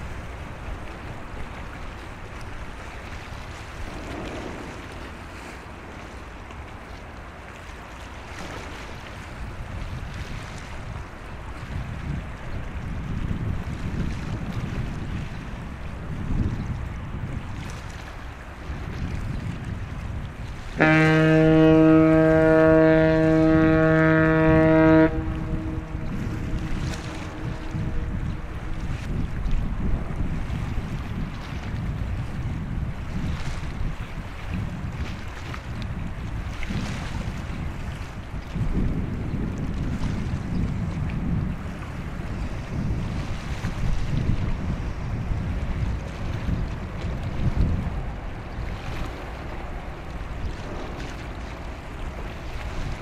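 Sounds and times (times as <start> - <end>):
sea water washing: 0.0 - 53.0
wind buffeting microphone: 0.0 - 53.0
ship's whistle blast: 20.8 - 28.0.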